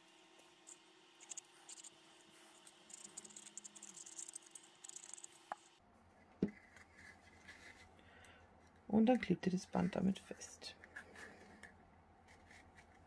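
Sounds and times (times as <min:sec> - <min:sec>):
glue stick rubbing on cardboard: 0:00.7 - 0:05.4.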